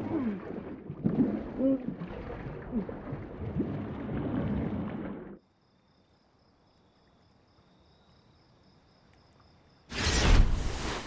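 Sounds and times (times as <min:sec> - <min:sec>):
underwater churning and bubbling: 0:00.0 - 0:05.4.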